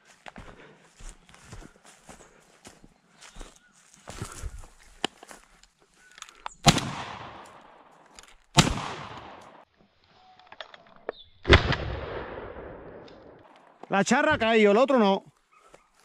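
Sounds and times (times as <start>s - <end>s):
shotgun shots with echo: 6.6s - 7.6s, 8.6s - 9.6s.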